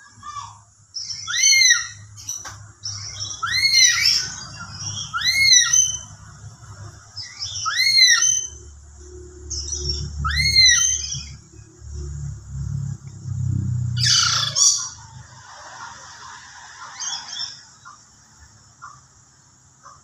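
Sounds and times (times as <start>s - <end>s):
parrot whistled calls: 1.0s - 2.0s, 2.9s - 6.1s, 7.2s - 8.6s, 9.9s - 11.4s, 14.0s - 15.0s.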